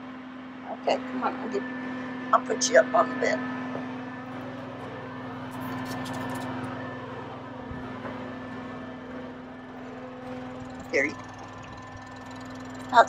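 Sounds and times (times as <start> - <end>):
steady mechanical hum: 0.0 - 13.0
handling rustles and clicks: 5.5 - 6.8.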